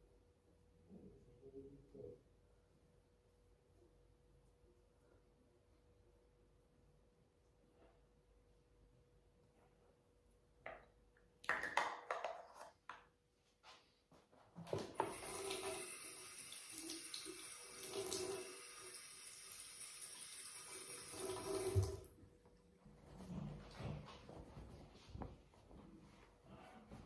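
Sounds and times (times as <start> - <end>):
tap running: 14.7 - 16.1.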